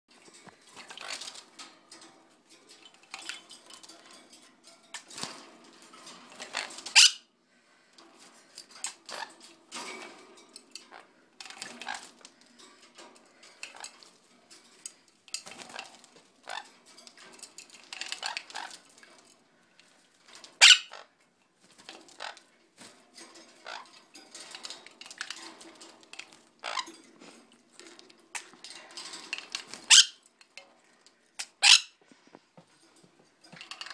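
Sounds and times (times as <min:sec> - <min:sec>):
plastic bath clattering on wire: 0:00.1 - 0:07.1, 0:07.8 - 0:31.5, 0:32.1 - 0:33.9
parrot squawks: 0:06.9 - 0:07.3, 0:20.6 - 0:21.1, 0:29.9 - 0:30.2, 0:31.4 - 0:32.0.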